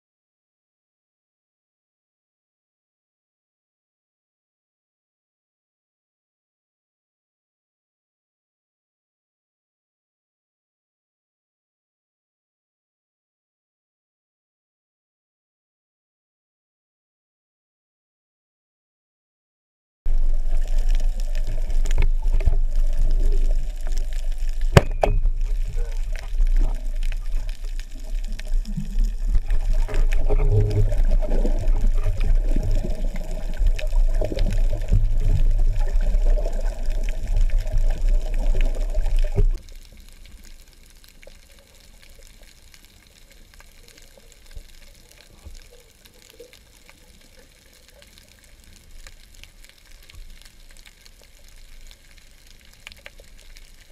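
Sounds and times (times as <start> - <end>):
faint hiss with light crackling: 20.1 - 53.9
muffled water rushing: 20.1 - 53.9.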